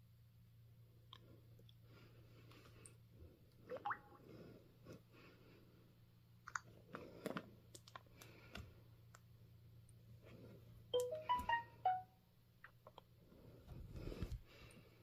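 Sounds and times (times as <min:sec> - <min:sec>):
fingers tapping touchscreens: 0:11.0 - 0:12.0.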